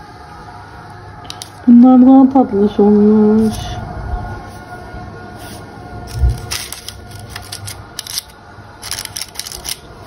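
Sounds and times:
parchment paper crinkling: 5.4s - 9.9s.

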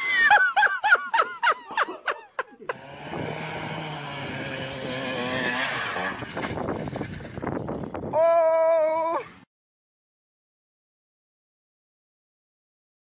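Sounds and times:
person laughing: 0.0s - 2.8s
motor scooter engine running: 2.7s - 8.1s.

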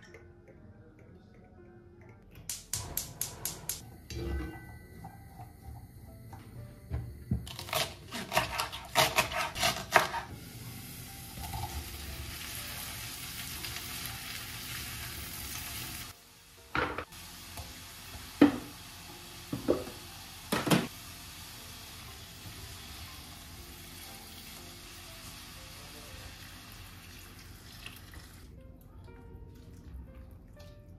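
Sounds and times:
vegetables sizzling in oil: 10.0s - 27.1s.

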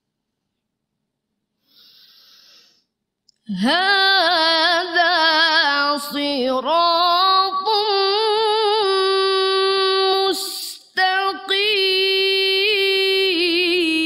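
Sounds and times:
woman chanting recitation: 3.5s - 14.0s.

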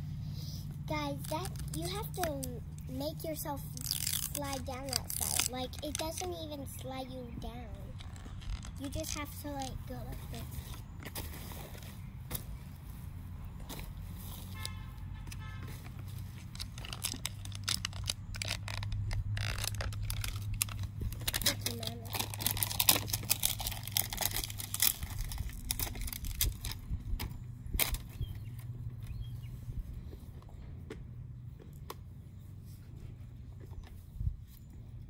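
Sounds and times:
low steady hum: 0.0s - 35.0s
plastic and paper crinkling: 1.1s - 7.0s, 7.9s - 12.0s, 15.7s - 27.0s.

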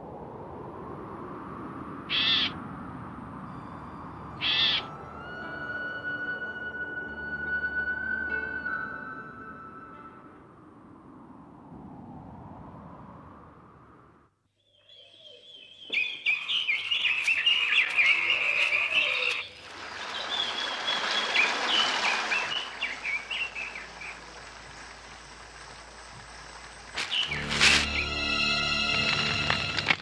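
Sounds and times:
high chirping animal calls: 2.1s - 2.6s, 4.4s - 5.0s, 14.7s - 19.6s
steady hiss: 19.7s - 27.4s.

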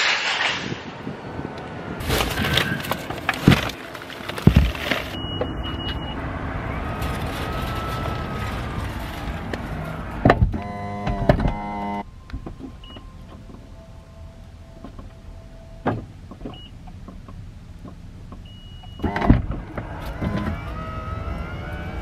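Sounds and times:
plastic bags rustling: 2.0s - 5.2s, 6.9s - 10.0s.

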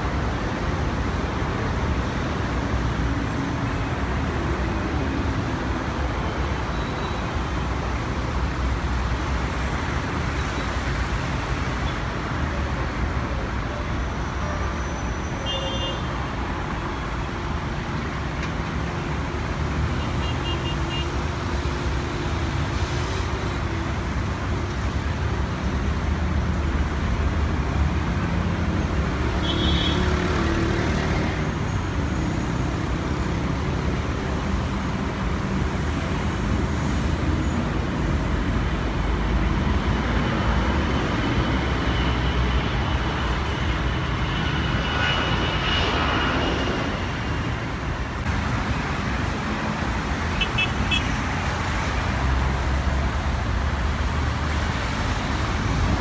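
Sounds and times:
distant jet engines: 31.6s - 56.0s.

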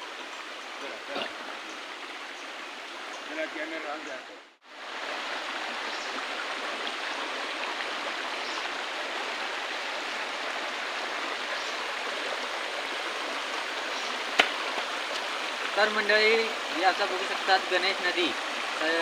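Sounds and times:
stream running over rocks: 0.0s - 19.0s.

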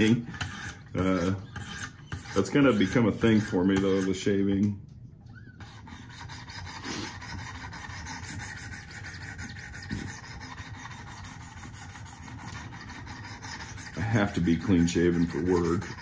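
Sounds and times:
sharpening stone scraping knife edge: 0.0s - 4.1s.

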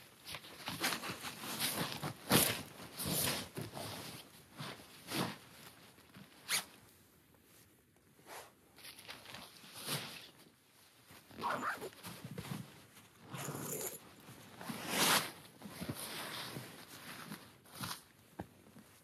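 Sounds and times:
sleeping bag fabric rustling: 8.3s - 18.2s.

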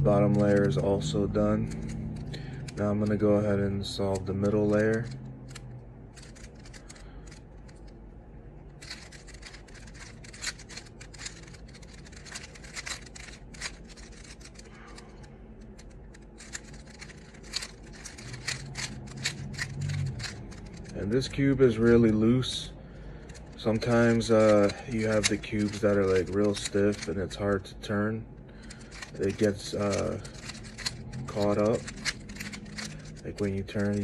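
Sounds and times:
puzzle cube clicking: 1.6s - 3.0s, 4.1s - 8.0s, 8.8s - 21.0s, 23.2s - 27.1s, 28.6s - 34.0s.

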